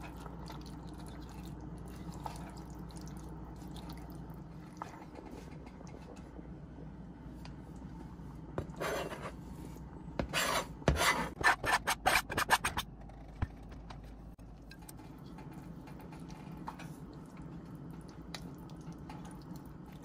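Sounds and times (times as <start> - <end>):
knife scraping cutting board: 10.3 - 12.8.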